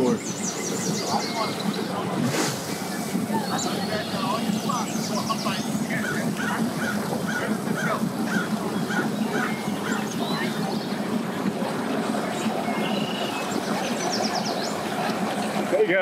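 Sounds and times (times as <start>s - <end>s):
boat engine humming: 0.0s - 16.0s
bird honking calls: 3.3s - 15.2s.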